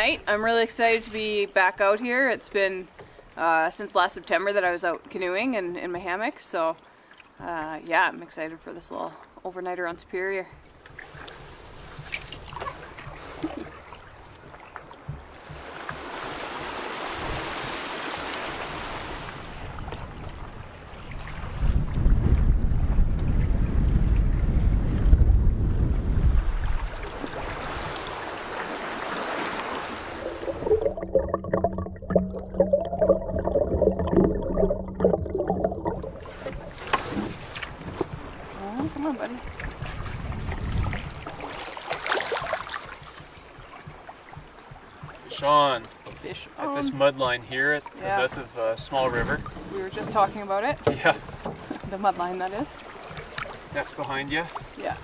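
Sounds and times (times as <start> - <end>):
water lapping against canoe: 9.1 - 55.0
light knocks on canoe: 10.6 - 16.1, 42.0 - 46.5, 47.9 - 54.7
paddle splash: 10.6 - 25.2, 26.0 - 31.0, 35.9 - 55.0
underwater bubbling and gurgling: 29.7 - 45.3.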